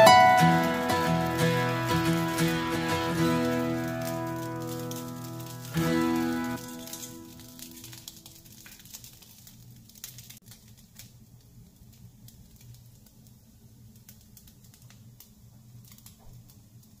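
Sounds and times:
utensils clicking on pan and plates: 1.0 - 8.7.

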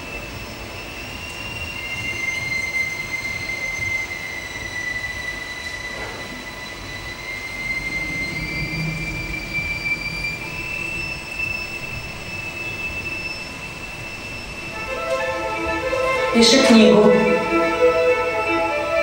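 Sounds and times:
high-pitched soundtrack tones: 14.7 - 19.0.

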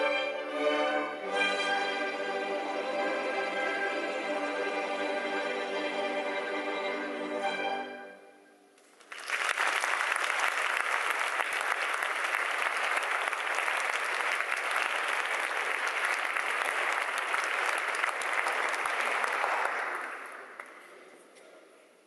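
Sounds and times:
audience applauding: 8.9 - 21.0.

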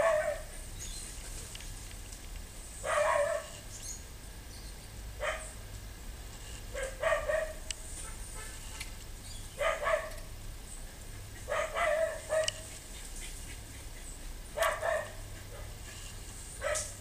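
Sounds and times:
animal barking: 0.0 - 0.6, 2.8 - 3.6, 5.2 - 5.6, 6.7 - 8.6, 9.6 - 10.3, 11.0 - 17.0.

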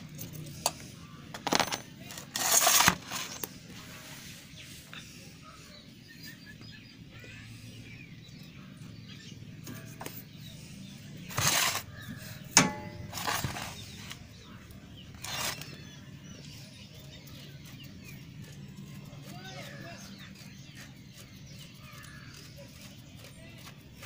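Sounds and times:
birds chirping faintly: 0.0 - 24.0
sharp metallic clink: 12.6 - 13.8.

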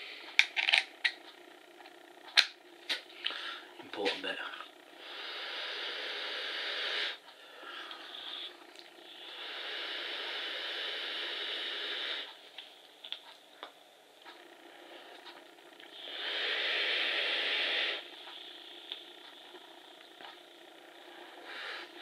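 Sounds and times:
coil sizzling: 0.0 - 22.0
hiss of air through vape coil: 5.0 - 7.2, 9.1 - 12.3, 15.9 - 19.0.

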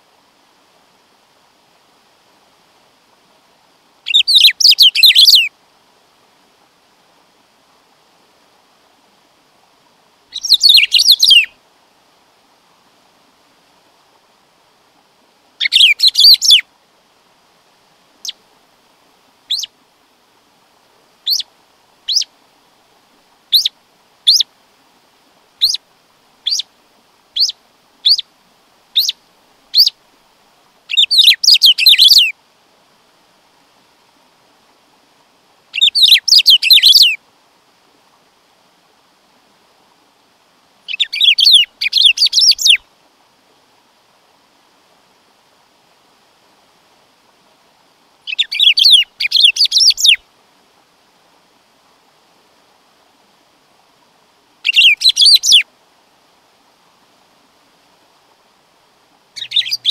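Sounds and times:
bird singing rapid high notes: 59.4 - 59.9.

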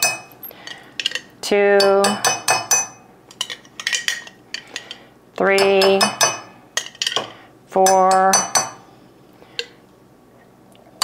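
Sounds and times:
spoon clinking against glass: 0.0 - 0.5.

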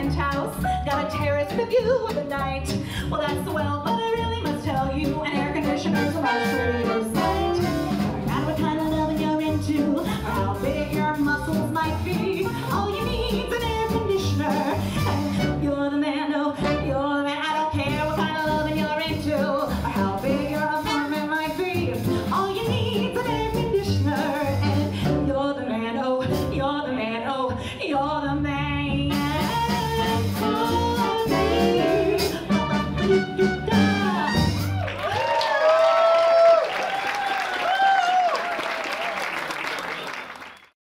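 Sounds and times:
small swing band: 0.0 - 15.7, 16.6 - 25.3, 29.1 - 35.4.

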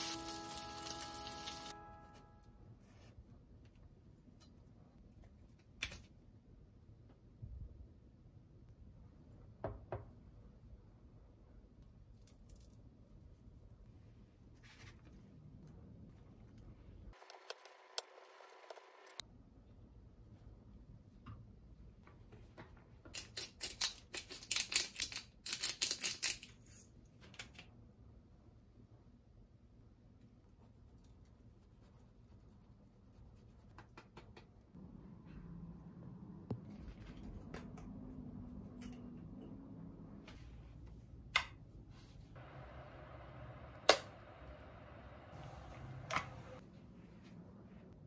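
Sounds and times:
pepper mill grinding: 0.0 - 1.7.

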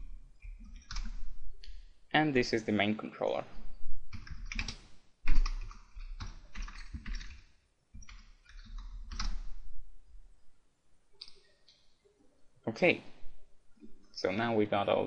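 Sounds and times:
keyboard typing: 0.4 - 1.8, 4.1 - 9.6.

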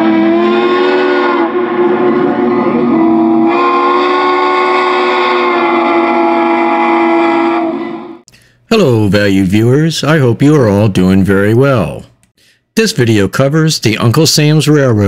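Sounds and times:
steam locomotive whistle blowing: 0.0 - 8.2.

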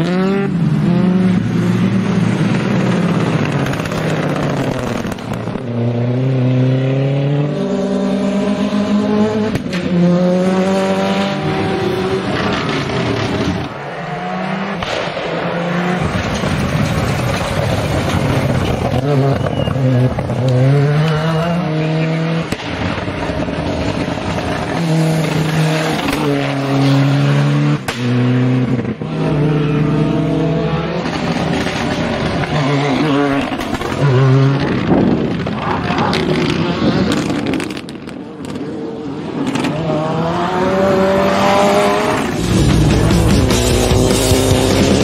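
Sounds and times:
rally car engines revving: 0.0 - 45.0.

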